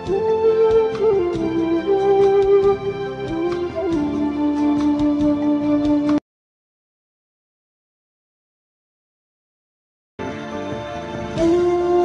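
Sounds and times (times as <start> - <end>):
slow melody of held notes: 11.4 - 12.0.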